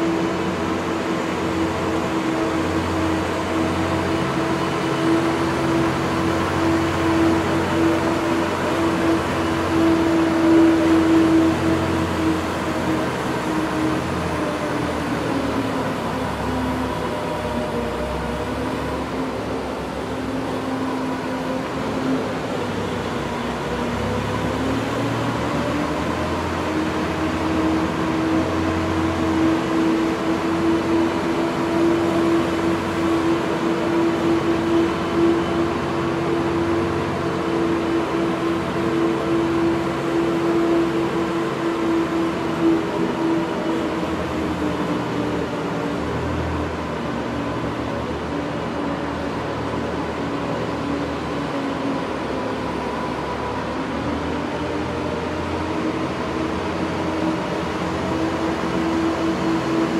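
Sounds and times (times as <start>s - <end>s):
ice resurfacer engine hum: 0.0s - 59.9s.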